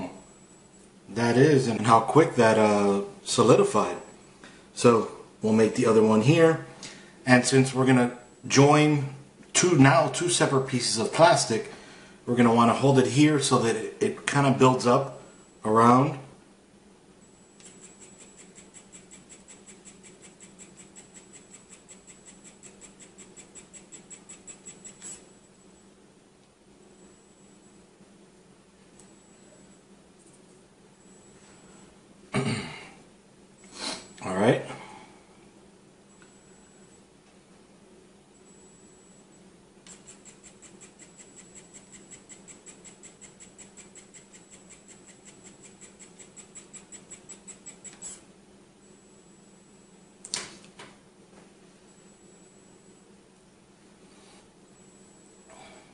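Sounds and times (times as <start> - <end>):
faint high whine: 17.0 - 32.9, 33.5 - 55.9
pen feed motor ticking: 17.6 - 25.2, 39.9 - 48.2.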